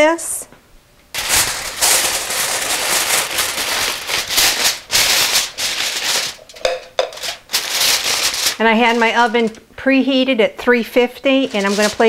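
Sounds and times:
aluminium foil crinkling: 0:01.1 - 0:09.6, 0:11.2 - 0:12.0.

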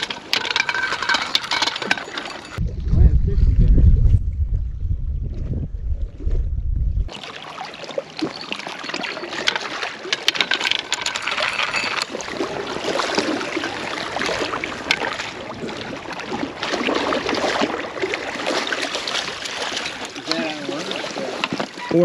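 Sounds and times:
water sloshing among rocks: 0:00.0 - 0:02.6, 0:07.1 - 0:22.0.

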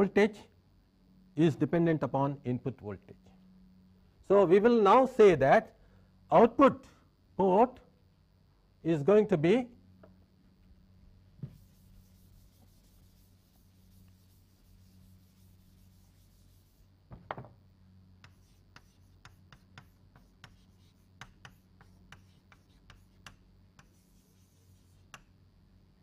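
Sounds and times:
faint low hum: 0:00.0 - 0:26.0
chalk tapping and scratching: 0:11.4 - 0:16.9, 0:18.2 - 0:25.3.

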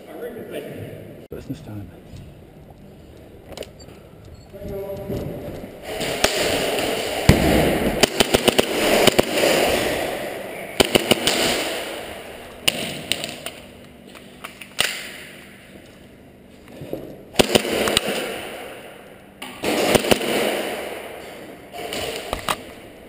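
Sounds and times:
airsoft gunshots: 0:05.8 - 0:13.4, 0:17.3 - 0:18.8, 0:19.5 - 0:22.7.

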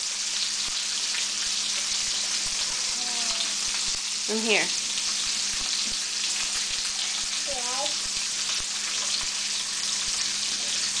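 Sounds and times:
bacon sizzling in a pan: 0:00.0 - 0:11.0
high-pitched voice: 0:02.9 - 0:03.6, 0:07.5 - 0:08.0.

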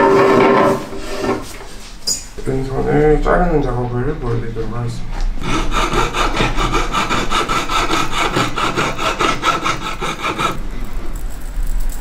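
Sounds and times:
jeweller's saw cutting wire: 0:05.4 - 0:10.6.

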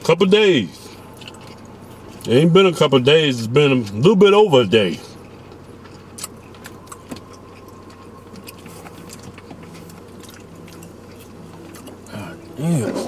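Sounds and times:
car cabin hum: 0:00.0 - 0:13.0
eating clicks and crinkles: 0:01.1 - 0:02.3, 0:05.3 - 0:12.5.

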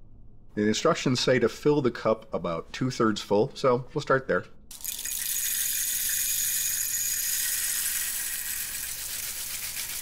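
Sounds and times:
peppercorns pouring into metal cup: 0:04.7 - 0:10.0.

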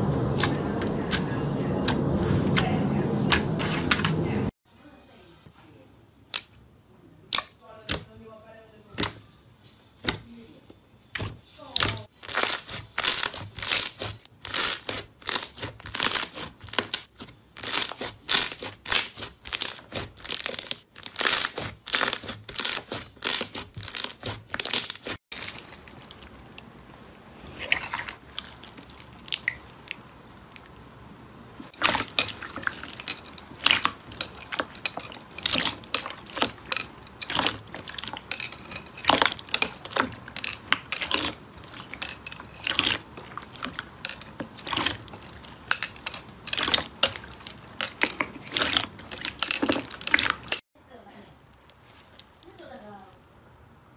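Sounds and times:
slime crackling and popping: 0:11.8 - 0:26.7, 0:31.7 - 0:50.6, 0:51.4 - 0:53.2
soft slime handling: 0:51.1 - 0:53.7.

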